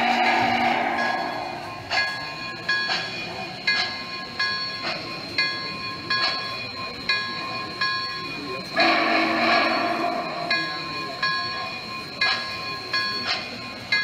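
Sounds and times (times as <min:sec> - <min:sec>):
steam whistle: 0:00.0 - 0:01.9, 0:08.8 - 0:10.6
locomotive bell ringing: 0:00.0 - 0:14.0.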